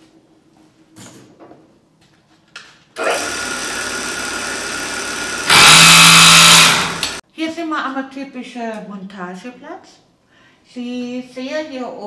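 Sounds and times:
riveting machine running: 3.0s - 7.2s.

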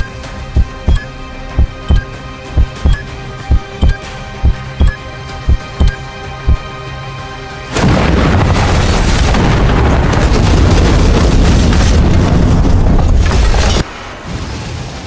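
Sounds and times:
bomb explosion blast: 7.7s - 13.6s.

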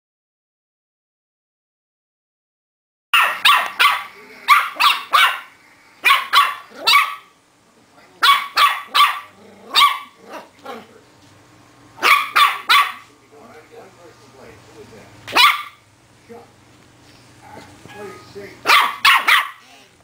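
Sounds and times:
puppy barking: 3.2s - 7.4s, 8.2s - 10.9s, 12.0s - 13.1s, 15.3s - 15.8s, 18.6s - 19.7s.

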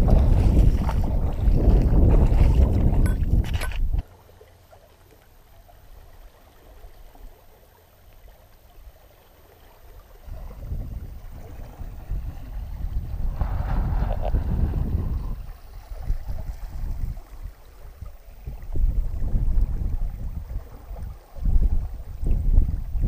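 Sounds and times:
wind buffeting microphone: 0.0s - 4.0s, 10.2s - 23.0s.

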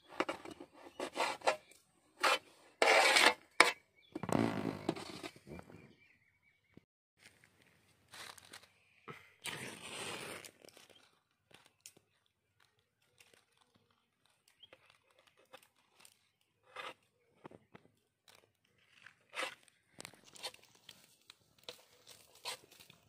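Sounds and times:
dry leaves rustling and crunching: 8.1s - 8.8s, 12.7s - 16.2s.

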